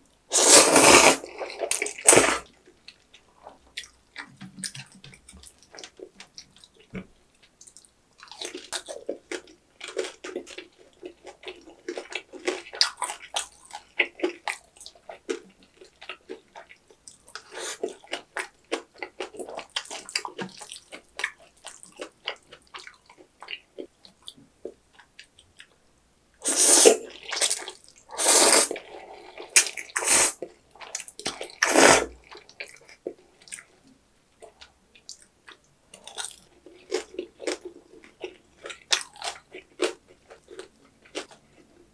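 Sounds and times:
loud noodle slurps: 0.3s - 2.5s, 26.4s - 30.4s, 31.6s - 32.2s
wet chewing of noodles: 0.3s - 25.8s, 26.4s - 33.8s, 34.4s - 41.9s.

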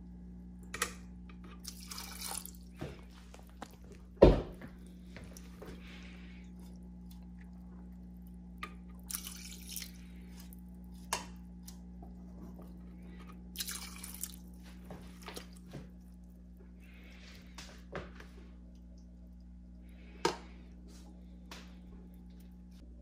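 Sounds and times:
steady low hum: 0.0s - 23.0s
water splashing in plastic bucket: 9.0s - 10.0s, 13.5s - 14.5s.

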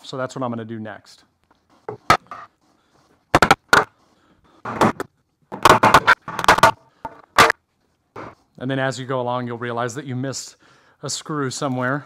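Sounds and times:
hammer striking wooden boards: 1.9s - 2.5s, 3.3s - 3.9s, 4.7s - 7.6s.

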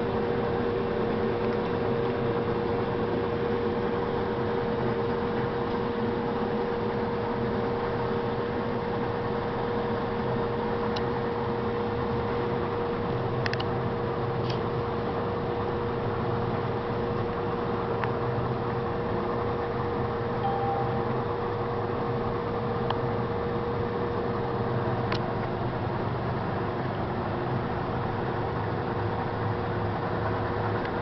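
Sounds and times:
combine harvester running: 0.0s - 31.0s.

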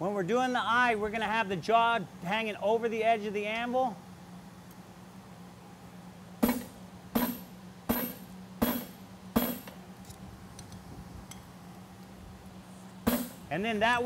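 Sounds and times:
steady low hum: 0.0s - 14.0s
hammer striking metal punch: 6.4s - 9.8s, 13.1s - 13.5s.

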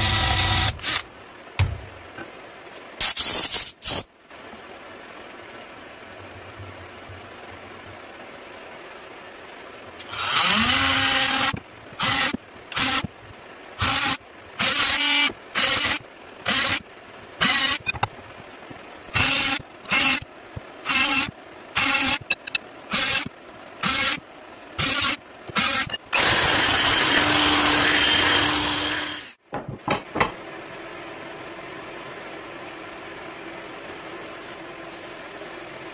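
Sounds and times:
power drill boring into wood: 0.0s - 1.1s, 10.1s - 13.1s, 24.8s - 29.3s.

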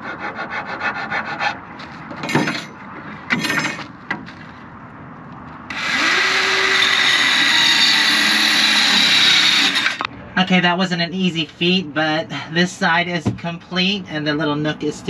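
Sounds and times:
reciprocating saw cutting wood: 0.0s - 1.6s, 5.7s - 10.1s
knocks of wood and tool handled: 1.8s - 4.6s.

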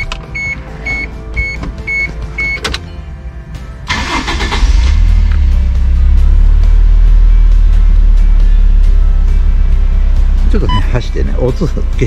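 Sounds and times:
truck engine cranking and starting: 3.8s - 6.2s
electronic warning beep: 10.7s - 10.9s.

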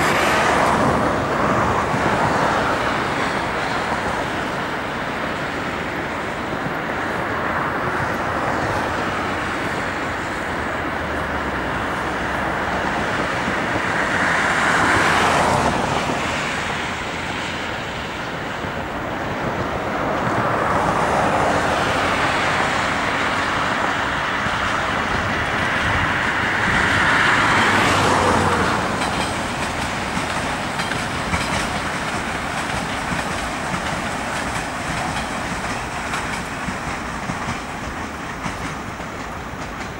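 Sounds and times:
traffic rumble: 0.0s - 39.9s
train wheels clattering on rails: 0.0s - 39.9s.

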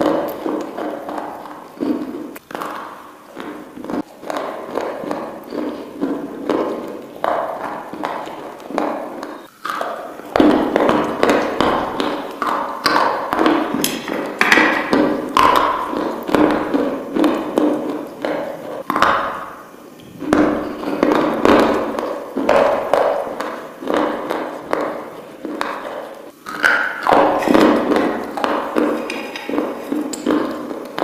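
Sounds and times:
crunching and chewing crisp food: 0.0s - 19.0s.

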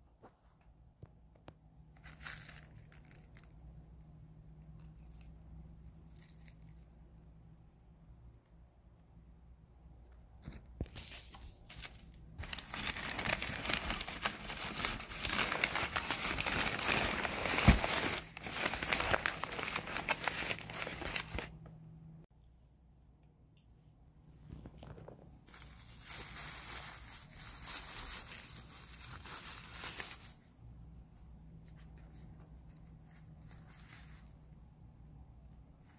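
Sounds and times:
paper and plastic crinkling: 2.0s - 3.6s, 10.4s - 21.6s, 24.5s - 34.6s.

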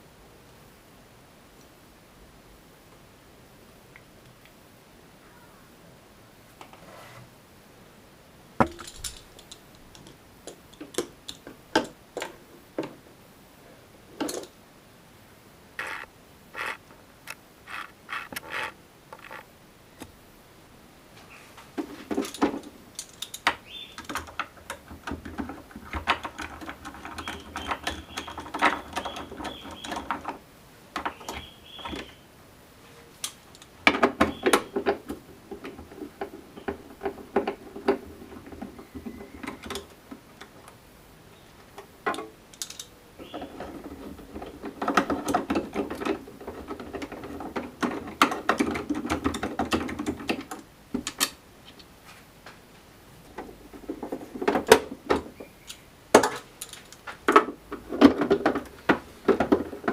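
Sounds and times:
plastic parts clicking and rattling: 8.6s - 13.0s, 15.8s - 16.8s, 17.7s - 19.4s, 21.8s - 32.1s, 33.2s - 40.6s, 41.8s - 51.8s, 53.3s - 59.9s
screwdriver undoing screws: 15.8s - 16.8s, 17.7s - 19.4s.

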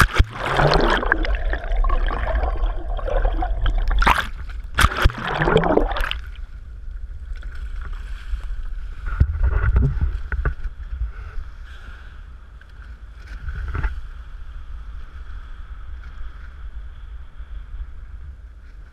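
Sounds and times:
water splashes: 0.0s - 6.5s
wind noise on microphone: 0.0s - 18.9s.

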